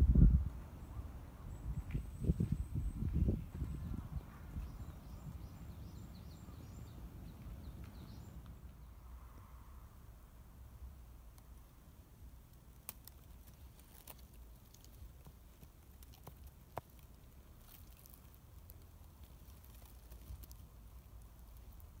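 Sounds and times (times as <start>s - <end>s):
faint low wind rumble: 0.0s - 22.0s
small clicks and ticks: 12.5s - 22.0s.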